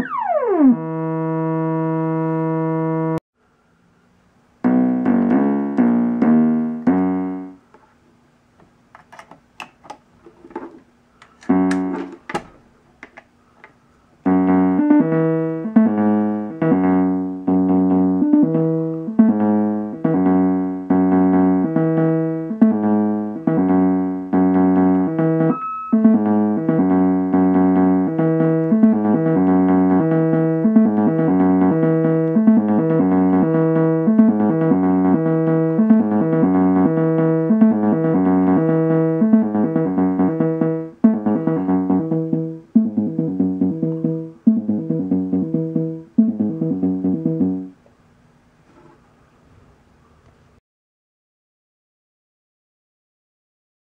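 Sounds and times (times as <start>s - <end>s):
sequenced synth pattern: 0.0s - 3.2s, 22.6s - 47.7s
synthesizer short notes: 0.0s - 3.2s
clicks: 10.6s - 13.8s.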